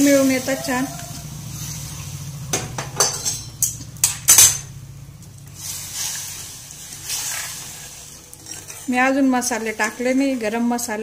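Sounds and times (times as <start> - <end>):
steady low hum: 0.0 - 10.4.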